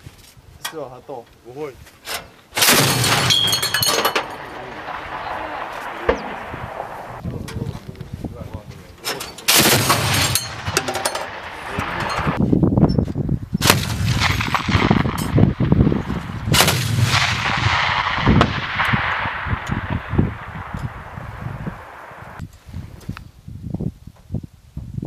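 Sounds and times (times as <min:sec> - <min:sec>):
autocannon firing bursts: 0:02.6 - 0:07.2, 0:09.5 - 0:12.4, 0:13.6 - 0:22.4.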